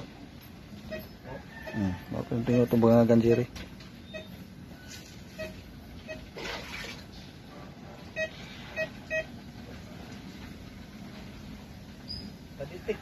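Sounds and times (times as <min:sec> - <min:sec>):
short electronic beeps: 0:00.8 - 0:06.4, 0:08.1 - 0:09.4.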